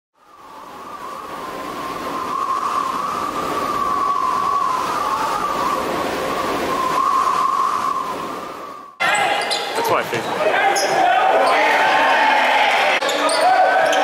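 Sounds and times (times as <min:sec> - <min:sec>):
howling wind roar: 0:00.2 - 0:09.0.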